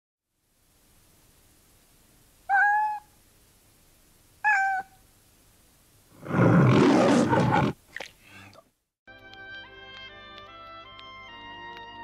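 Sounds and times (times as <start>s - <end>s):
cat meowing: 2.5s - 3.1s, 4.4s - 5.0s.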